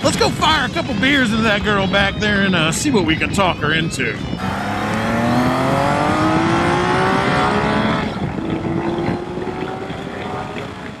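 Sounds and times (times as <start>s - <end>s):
motorcycle engine accelerating: 4.4s - 11.0s.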